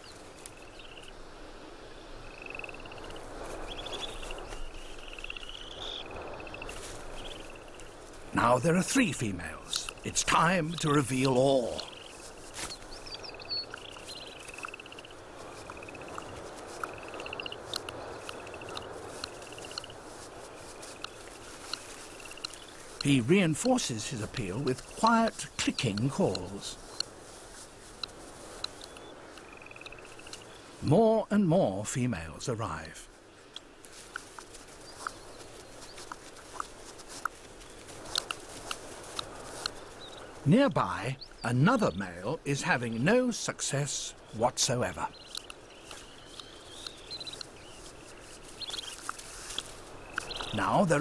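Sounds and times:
outdoor ambience: 0.0s - 51.0s
bird clicking calls: 2.3s - 20.0s, 20.9s - 27.2s, 27.9s - 30.6s, 33.5s - 40.4s, 44.1s - 51.0s.

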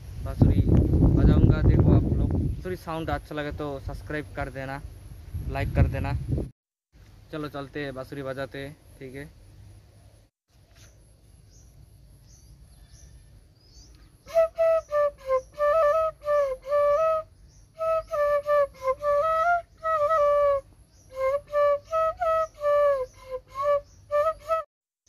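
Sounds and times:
bamboo flute melody: 14.2s - 24.7s.

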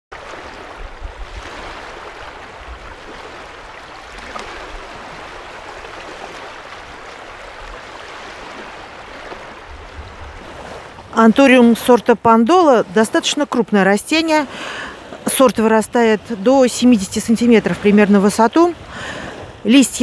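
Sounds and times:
waves washing on stony shore: 0.1s - 20.0s
wind rumble on microphone: 0.2s - 11.4s.

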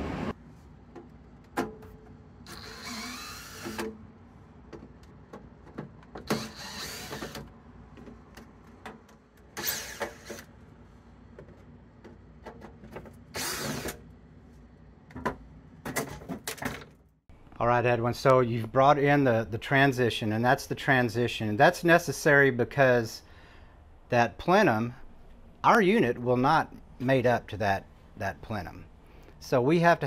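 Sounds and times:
cordless drill running: 2.5s - 3.8s, 6.3s - 7.4s, 9.6s - 10.4s, 13.4s - 14.0s.

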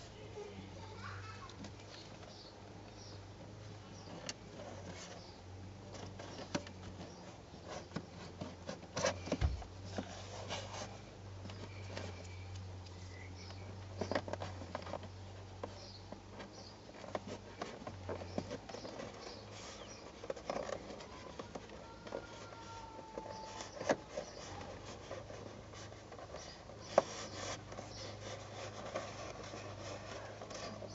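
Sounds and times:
thump: 9.3s - 9.7s.

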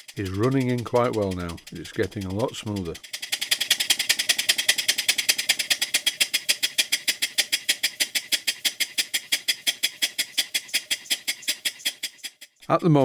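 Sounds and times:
model steam engine puffing: 0.0s - 12.8s.

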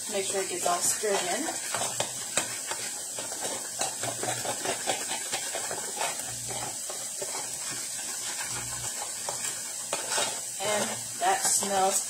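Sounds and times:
food frying in a pan: 0.0s - 12.0s
spoon scraping plastic bowl: 0.2s - 12.0s.

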